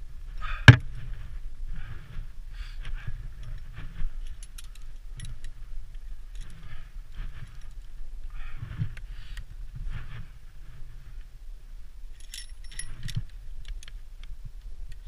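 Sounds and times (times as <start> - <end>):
carabiners clinking on chain: 3.3 - 5.6, 6.2 - 7.9, 12.1 - 13.9.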